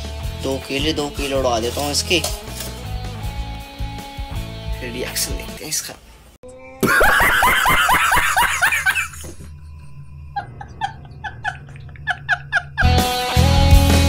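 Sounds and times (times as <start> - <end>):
man laughing hard: 6.8 - 9.4, 10.4 - 13.2.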